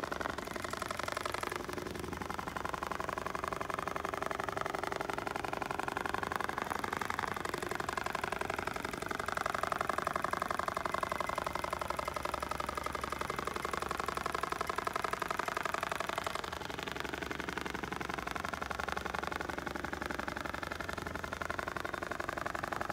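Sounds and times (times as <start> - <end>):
industrial sewing machine stitching: 0.0 - 18.4.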